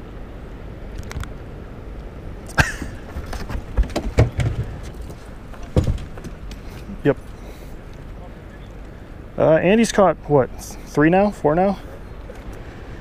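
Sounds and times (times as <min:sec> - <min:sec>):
dog walking on metal deck: 0:03.2 - 0:06.4.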